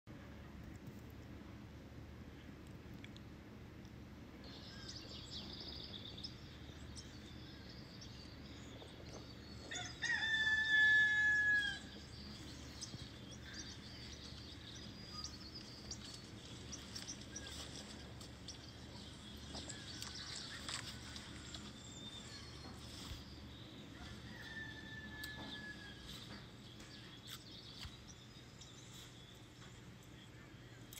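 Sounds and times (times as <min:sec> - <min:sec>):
small birds chirping: 0:04.4 - 0:30.9
rooster crowing: 0:09.6 - 0:12.1, 0:23.9 - 0:26.4.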